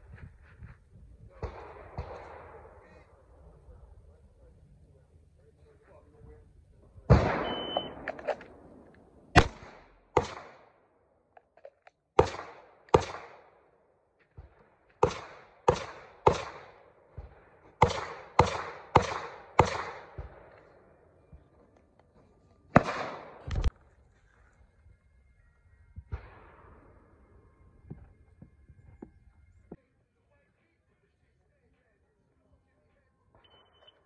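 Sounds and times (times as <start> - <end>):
pistol shots: 1.4 - 2.8, 7.1 - 10.8, 12.2 - 13.7, 14.4 - 20.8, 22.7 - 23.7
shot timer beep: 7.4 - 8.0.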